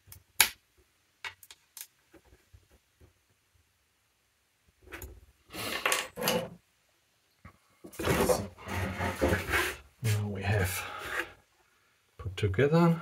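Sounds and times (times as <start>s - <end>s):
plastic scraping on cardboard: 8.0s - 10.2s.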